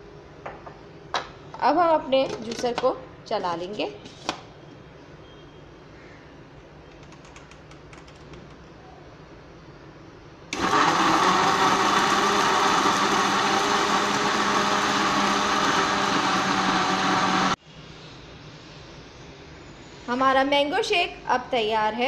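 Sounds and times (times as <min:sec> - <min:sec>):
blender motor running: 0:10.5 - 0:17.6.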